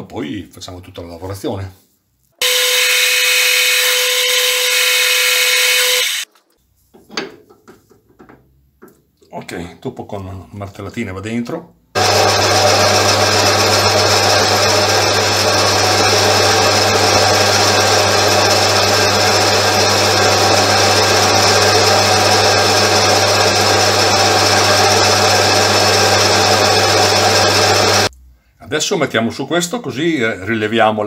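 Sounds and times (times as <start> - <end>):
metal lathe humming: 2.4 - 6.3, 12.0 - 28.1.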